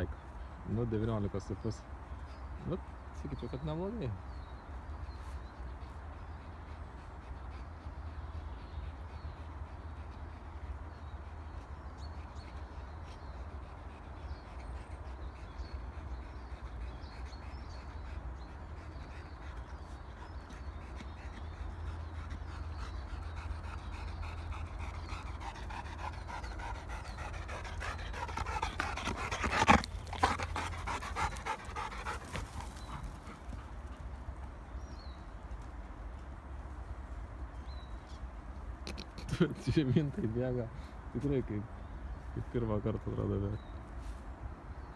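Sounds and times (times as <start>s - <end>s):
dog panting: 1.5s - 35.3s.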